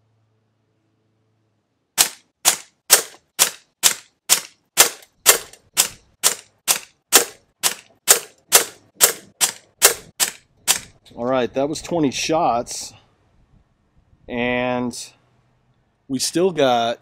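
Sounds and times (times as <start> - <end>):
air pistol shots: 2.0 - 11.0.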